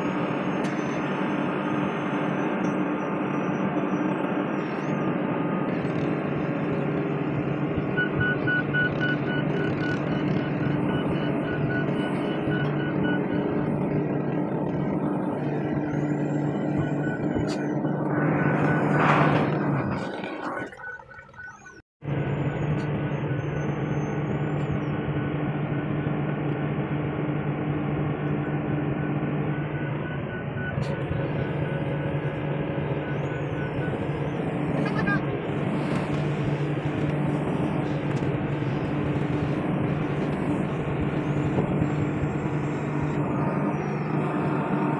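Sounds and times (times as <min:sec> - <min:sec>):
diesel engine running: 0:00.0 - 0:44.9
fast electronic beeping: 0:07.8 - 0:21.8, 0:29.0 - 0:35.3.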